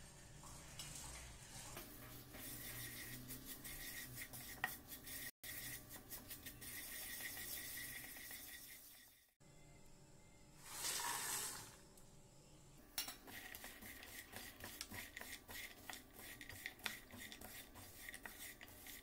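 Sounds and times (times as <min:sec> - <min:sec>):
spatula scraping frying pan: 0:01.4 - 0:09.4, 0:13.0 - 0:19.0.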